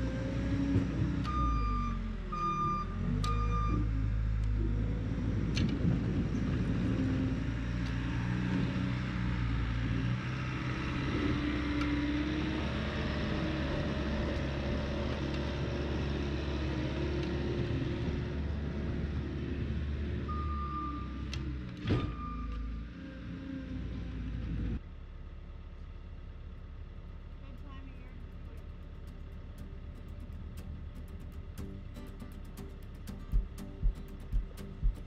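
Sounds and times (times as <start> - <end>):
heavy equipment engine running: 0.0 - 35.0
reversing alarm beeping: 1.2 - 3.9.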